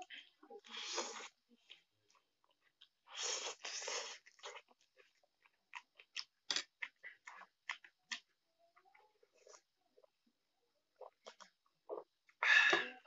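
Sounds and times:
wet chewing: 0:00.0 - 0:10.2, 0:10.9 - 0:12.4
slurping noodles: 0:03.0 - 0:04.7.

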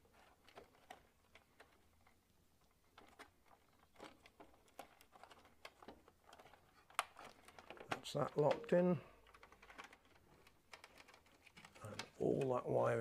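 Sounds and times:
plastic connectors clicking: 0:02.9 - 0:12.6.

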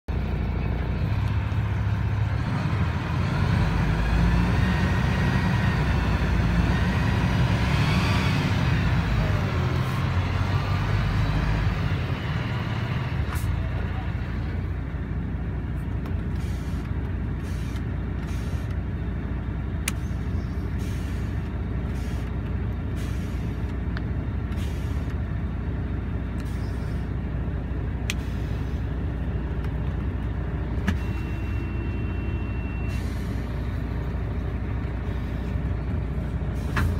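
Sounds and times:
diesel engine idling: 0:00.1 - 0:36.9.

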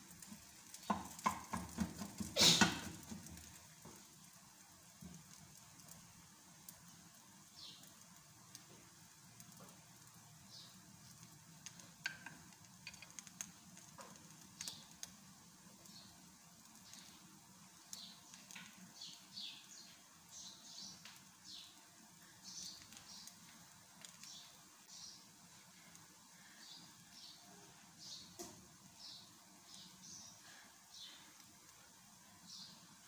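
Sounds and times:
paratha crackling in a pan: 0:00.0 - 0:33.0
birds chirping: 0:07.5 - 0:08.0, 0:16.8 - 0:31.4.

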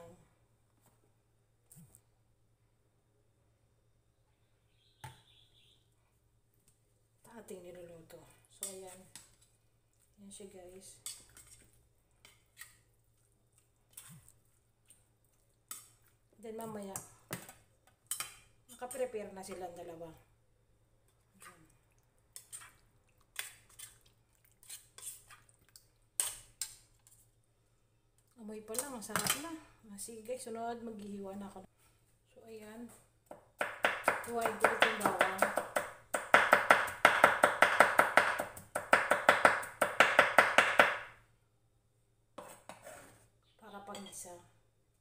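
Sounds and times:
spoon scraping metal bowl: 0:11.0 - 0:12.9, 0:22.4 - 0:25.5, 0:42.4 - 0:43.3
knife chopping on wooden board: 0:33.3 - 0:41.1.

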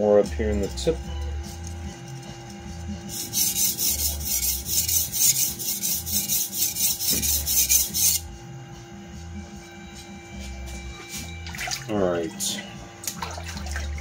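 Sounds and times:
blade scraping on whetstone: 0:01.8 - 0:08.3.

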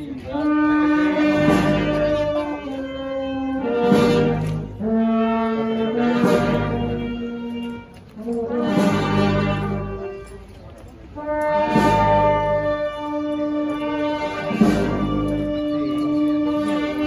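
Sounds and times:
brass band playing slow march: 0:00.0 - 0:17.0
percussion strokes: 0:00.0 - 0:17.0.

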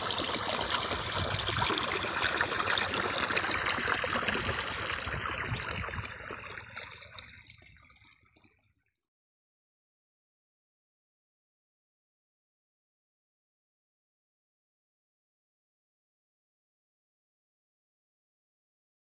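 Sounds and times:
water flowing and trickling: 0:00.0 - 0:09.0.

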